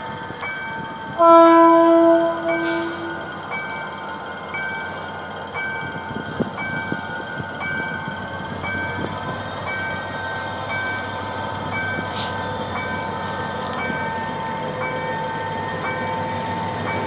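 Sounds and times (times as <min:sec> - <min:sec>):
diesel locomotive engine rumble: 0:00.0 - 0:17.0
crossing alarm alternating tones: 0:00.1 - 0:12.1.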